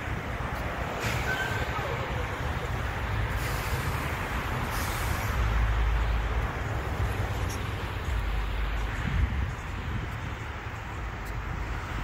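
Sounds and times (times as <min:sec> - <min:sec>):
vehicle engines rumbling: 0:00.0 - 0:12.0
wind buffeting microphone: 0:06.8 - 0:12.0.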